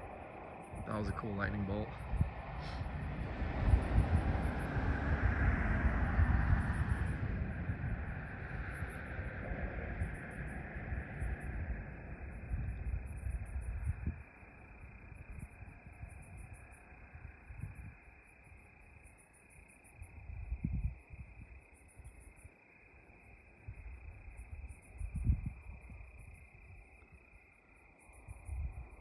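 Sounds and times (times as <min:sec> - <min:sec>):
low rumble bursts: 0:00.0 - 0:14.2
crickets chirping: 0:00.0 - 0:29.0.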